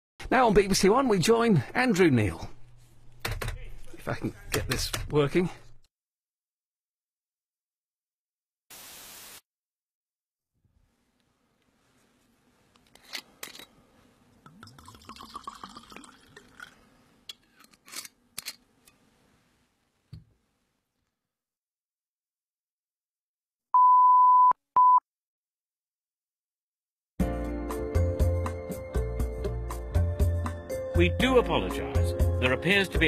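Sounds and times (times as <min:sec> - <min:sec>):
test-tone beep: 0:23.8 - 0:25.0.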